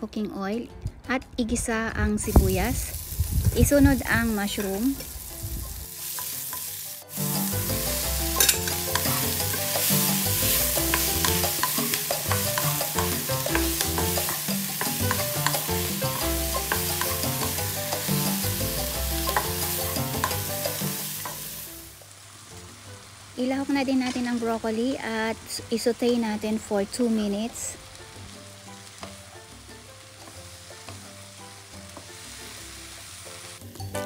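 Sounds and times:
vegetables sizzling in oil: 0:02.2 - 0:34.0.

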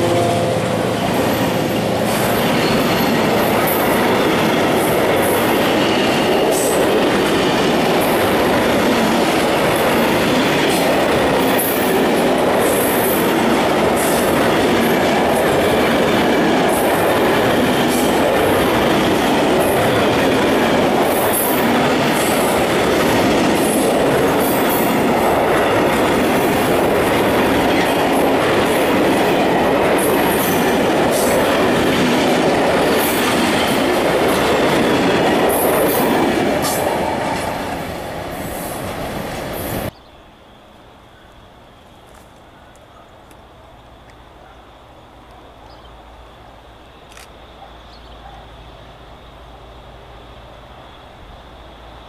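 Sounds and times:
freight train wheels rumbling on rails: 0:00.0 - 0:40.0.

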